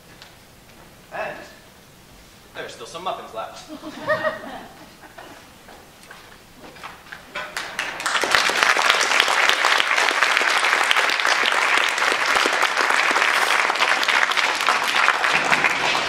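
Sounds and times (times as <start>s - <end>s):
audience applauding: 7.4s - 16.0s.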